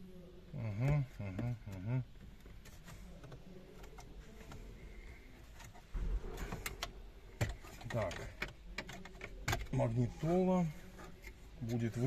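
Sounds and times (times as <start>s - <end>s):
dull bump: 5.9s - 7.6s
plastic clicks and knocks: 6.5s - 9.8s.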